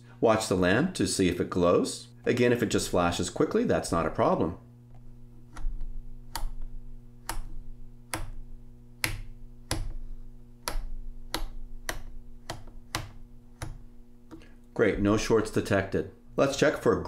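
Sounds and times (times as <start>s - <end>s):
steady low hum: 0.0s - 17.0s
rotary switch clicking: 4.9s - 10.0s, 10.6s - 14.5s.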